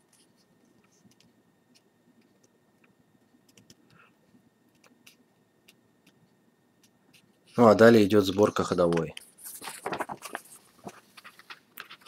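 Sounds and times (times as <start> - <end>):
faint small ticks and clicks: 0.1 - 7.3.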